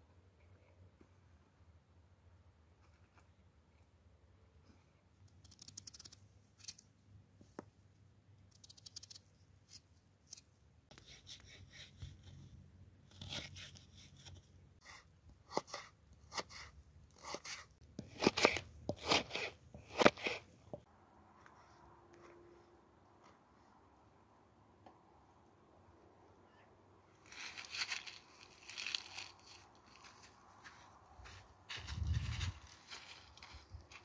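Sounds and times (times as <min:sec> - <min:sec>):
knife slicing potato: 0:15.5 - 0:20.4.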